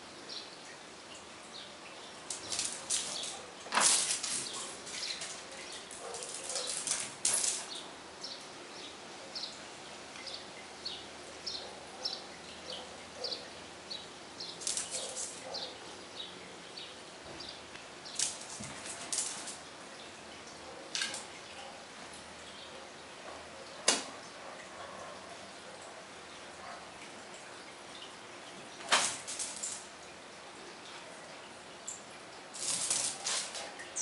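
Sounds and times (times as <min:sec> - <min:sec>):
small birds chirping: 0:00.1 - 0:24.4.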